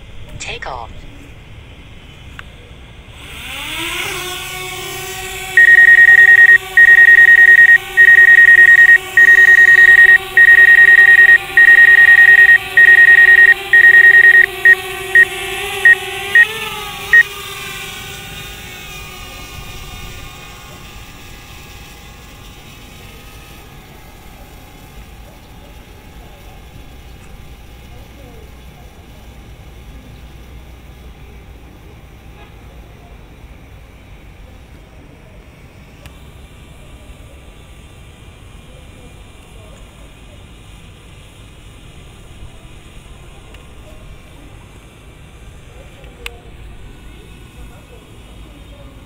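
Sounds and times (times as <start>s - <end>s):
high-pitched beeps: 5.6s - 16.5s.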